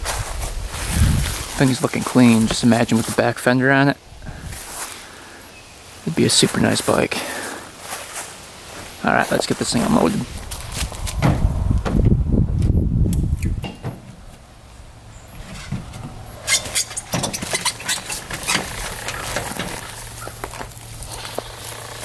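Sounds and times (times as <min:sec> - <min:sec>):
low rumble: 0:10.3 - 0:13.6
metal ramp clanking and rattling: 0:15.3 - 0:19.9.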